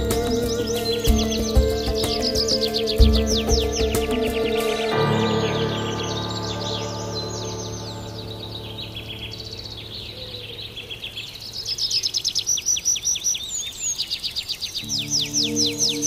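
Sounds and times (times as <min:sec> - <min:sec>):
soft background music: 0:00.0 - 0:11.4, 0:14.8 - 0:16.0
songbirds chirping: 0:00.0 - 0:16.0.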